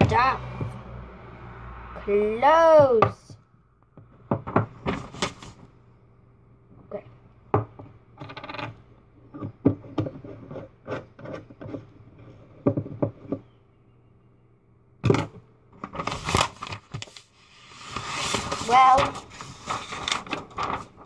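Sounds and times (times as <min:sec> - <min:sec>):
taps and knocks on a desk: 0:04.0 - 0:05.0, 0:07.5 - 0:07.9
paper rustling and crumpling: 0:04.9 - 0:05.6, 0:15.9 - 0:21.0.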